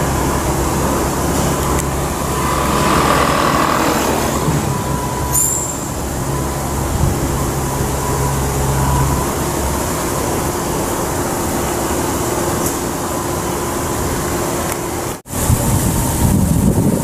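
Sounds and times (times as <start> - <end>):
passing vehicle engine hum: 0.0 - 12.4
road traffic roar: 0.0 - 17.0.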